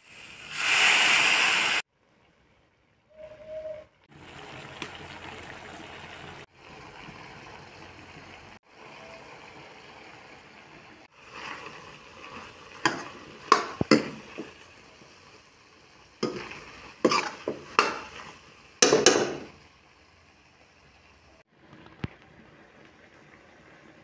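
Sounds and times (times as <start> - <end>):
curry sizzling in a pan: 4.1 - 24.0
metal spoon knocking on pan: 12.8 - 14.6, 16.2 - 18.2, 18.8 - 19.5.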